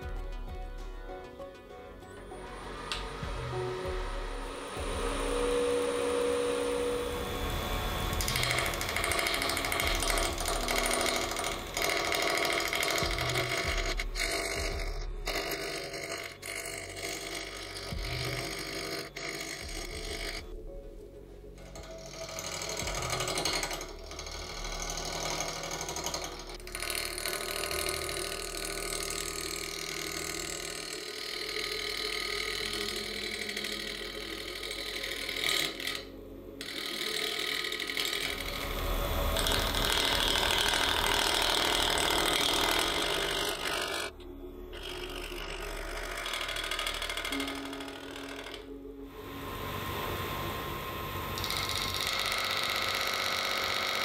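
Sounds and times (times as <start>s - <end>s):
wood lathe spinning: 0.0s - 20.7s, 21.4s - 54.0s
gouge rattling on interrupted cut: 2.5s - 20.5s, 21.7s - 44.2s, 44.8s - 54.0s.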